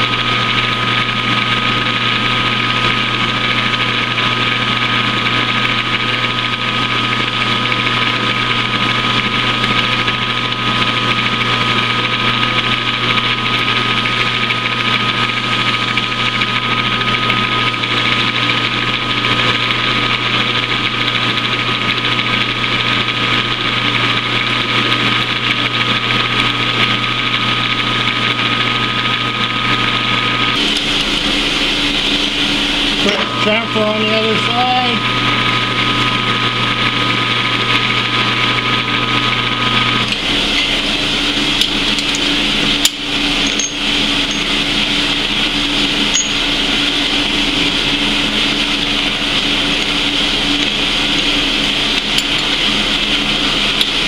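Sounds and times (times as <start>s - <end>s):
metal lathe running: 0.0s - 54.0s
high whine and cutting hiss: 30.4s - 35.4s.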